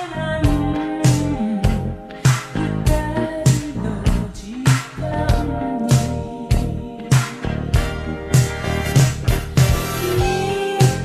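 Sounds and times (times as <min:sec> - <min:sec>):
woman singing wordless line: 0:00.0 - 0:07.7, 0:10.2 - 0:11.0
reverb-heavy pop band: 0:00.0 - 0:11.0.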